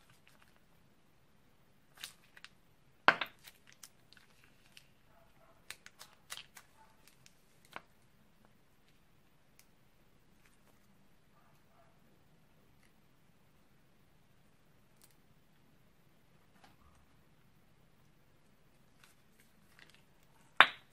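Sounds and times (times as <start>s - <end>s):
plastic piping bag crinkling: 0.0s - 0.7s, 1.9s - 2.6s, 3.2s - 8.0s, 18.7s - 20.5s.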